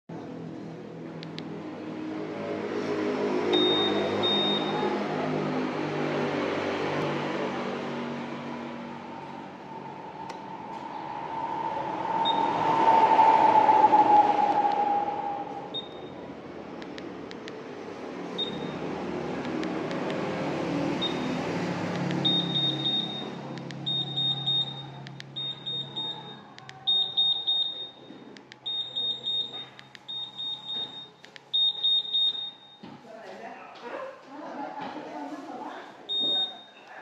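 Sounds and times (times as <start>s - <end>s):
high-pitched buzzer beeps: 3.5s - 4.9s, 22.2s - 28.0s, 28.6s - 32.8s.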